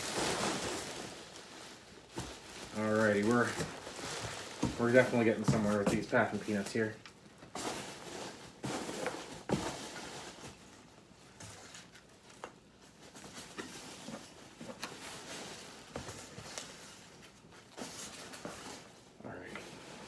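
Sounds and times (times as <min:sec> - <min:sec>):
packing peanuts rustling: 0:00.0 - 0:10.8.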